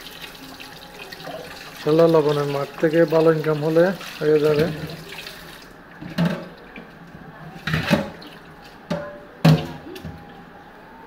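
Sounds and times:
tap water running into sink: 0.0s - 6.5s
knocks and clatters in sink: 6.0s - 6.6s, 7.6s - 8.3s.

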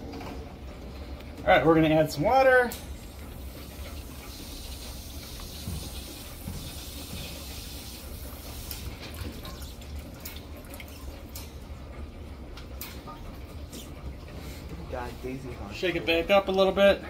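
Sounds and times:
tap water running into barrel: 2.7s - 14.3s.

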